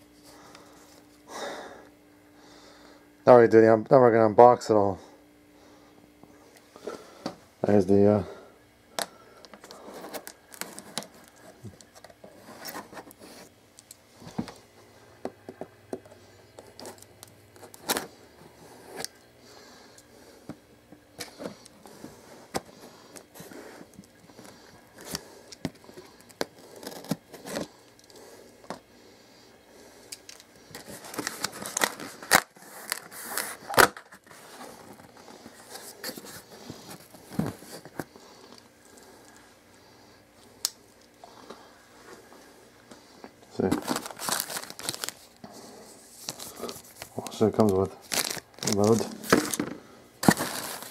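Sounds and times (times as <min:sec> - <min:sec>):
packing material rustling: 0:09.7 - 0:13.5, 0:23.1 - 0:28.2, 0:30.3 - 0:38.1, 0:43.5 - 0:50.9.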